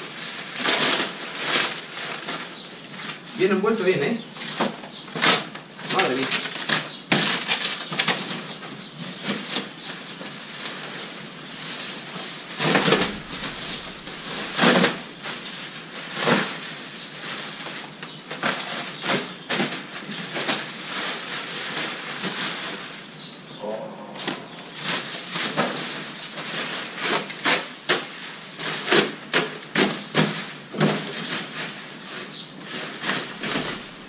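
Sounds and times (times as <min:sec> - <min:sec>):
plastic wrap crinkling: 0:00.0 - 0:03.4, 0:04.4 - 0:23.2, 0:25.5 - 0:34.0.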